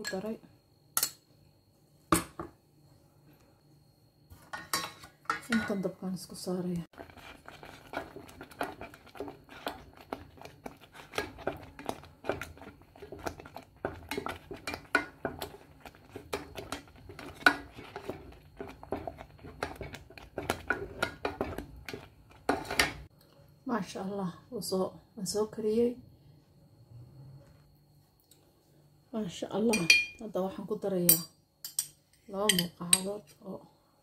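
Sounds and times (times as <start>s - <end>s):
spatula scraping and knocking pot: 4.4s - 5.9s, 6.9s - 23.1s.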